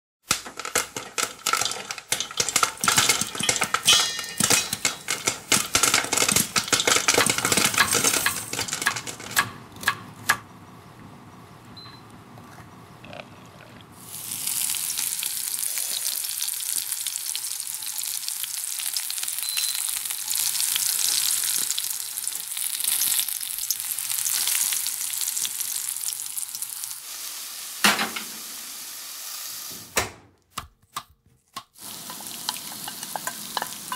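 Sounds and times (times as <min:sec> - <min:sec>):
crackling and sharp clicks in pan: 0:00.2 - 0:10.5, 0:16.2 - 0:26.7, 0:30.6 - 0:33.9
high sizzle: 0:00.3 - 0:09.5, 0:14.0 - 0:30.0, 0:31.8 - 0:33.9
metal pan clunk on oven rack: 0:03.4 - 0:05.3, 0:27.8 - 0:28.4.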